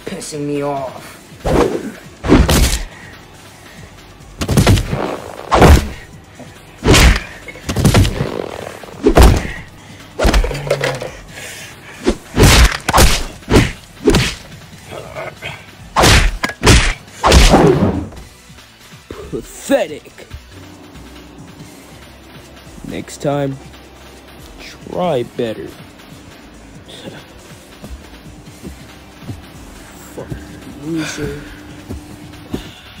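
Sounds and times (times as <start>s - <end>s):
background music: 0.0s - 33.0s
cartoon punch thuds: 1.5s - 2.9s, 4.4s - 6.0s, 6.8s - 8.3s, 9.0s - 9.6s, 12.4s - 14.4s, 16.0s - 18.2s.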